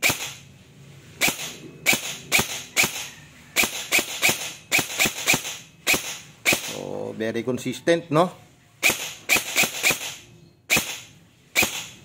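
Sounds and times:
airsoft rifle shots cracking: 0.0s - 0.4s, 1.2s - 6.8s, 8.8s - 12.0s.

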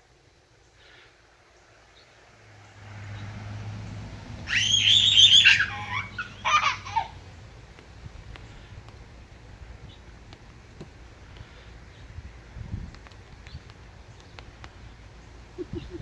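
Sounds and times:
toddler squealing with laughter: 4.4s - 7.2s.

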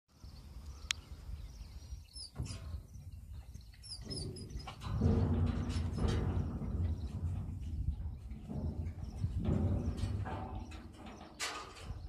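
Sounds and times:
small birds chirping: 0.1s - 12.0s
low rumble: 4.4s - 11.0s.

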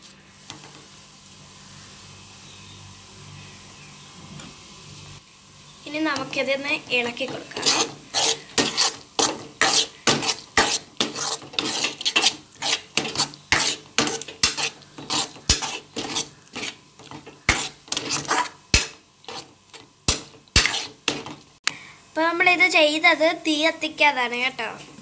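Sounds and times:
spoon scraping and clinking: 7.3s - 19.5s, 20.1s - 21.3s.

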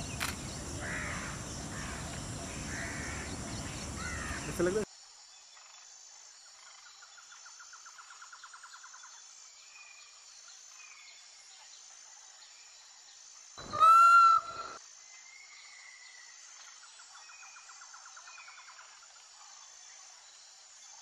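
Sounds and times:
faint outdoor background: 0.0s - 21.0s
peacock call: 13.6s - 14.8s.

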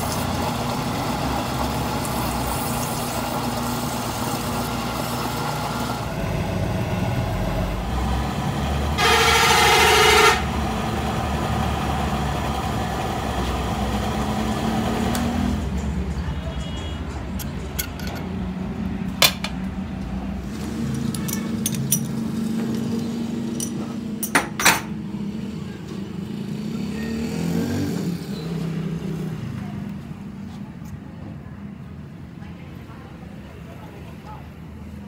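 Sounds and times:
loud horn blast: 8.9s - 10.7s
lathe chuck metallic clicks: 17.3s - 18.3s.

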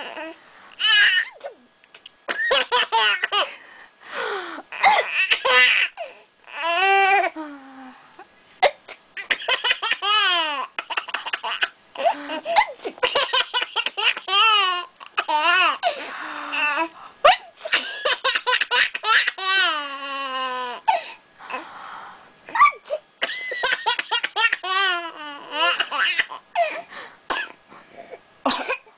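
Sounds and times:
baby laughing: 9.2s - 15.8s, 17.7s - 20.7s, 23.4s - 26.4s.

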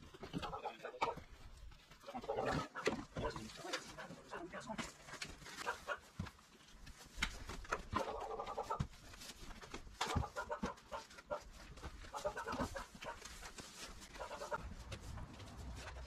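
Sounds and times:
hens clucking: 0.1s - 6.2s, 7.7s - 9.0s, 9.7s - 14.7s.

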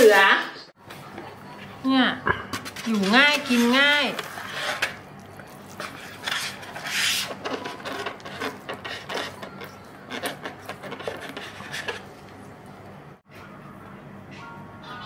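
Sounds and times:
spatula scraping food container: 2.6s - 12.4s.

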